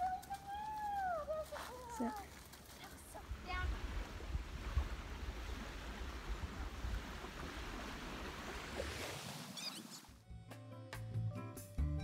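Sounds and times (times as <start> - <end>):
lapping lake water: 0.0 - 10.2
wind rumbling on microphone: 3.2 - 9.2
background music: 10.2 - 12.0.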